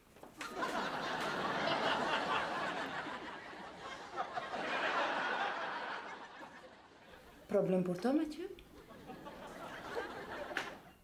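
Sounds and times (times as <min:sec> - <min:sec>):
studio audience laughing: 0:00.4 - 0:07.5, 0:08.8 - 0:11.0.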